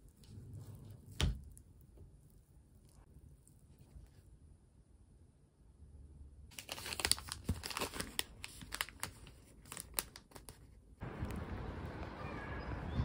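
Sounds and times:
plastic wrapper crinkling and tearing: 6.5 - 11.4
outdoor street ambience: 11.0 - 13.0.

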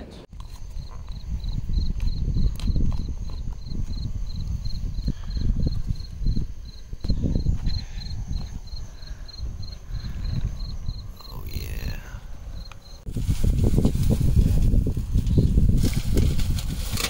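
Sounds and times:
insect chirping: 0.4 - 13.1.

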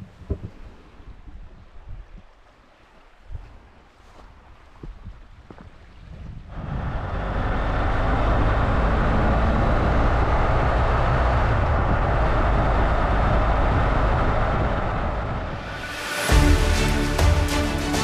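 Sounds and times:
wind rushing: 6.5 - 18.0.

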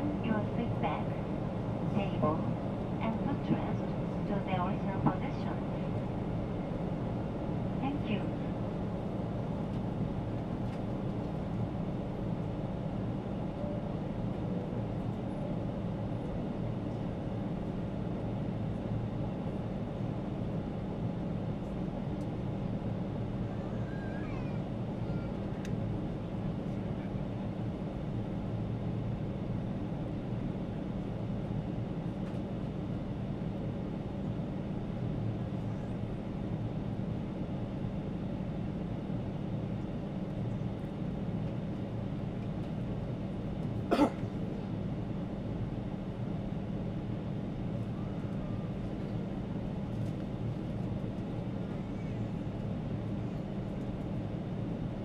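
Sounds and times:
airliner cabin engine drone: 0.0 - 55.0.

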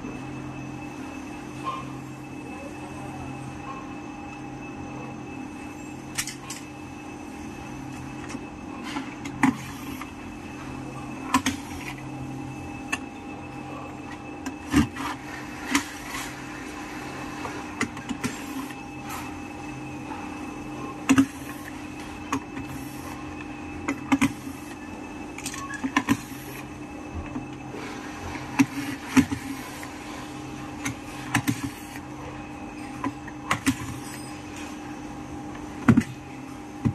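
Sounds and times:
steady hum: 0.0 - 36.9.

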